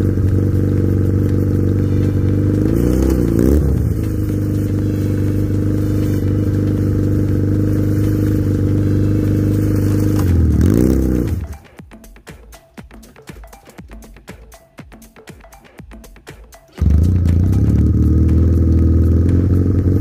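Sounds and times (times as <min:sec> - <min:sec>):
atv engine idling: 0:00.0 - 0:11.7, 0:16.8 - 0:20.0
engine throttle blips: 0:00.0 - 0:11.8, 0:16.8 - 0:20.0.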